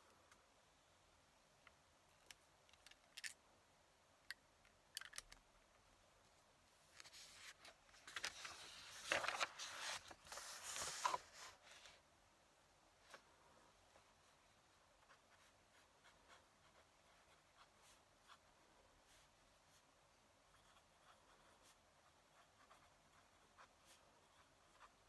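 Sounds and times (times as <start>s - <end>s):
paper rustling: 7.0s - 12.0s.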